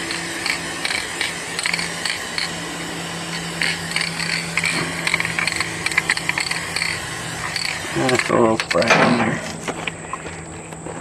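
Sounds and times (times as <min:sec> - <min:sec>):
spray can ball rattling: 0:00.0 - 0:02.6, 0:03.3 - 0:08.4.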